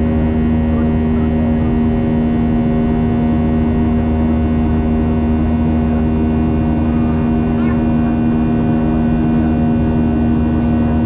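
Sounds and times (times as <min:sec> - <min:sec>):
jet engines droning in cabin: 0:00.0 - 0:11.0.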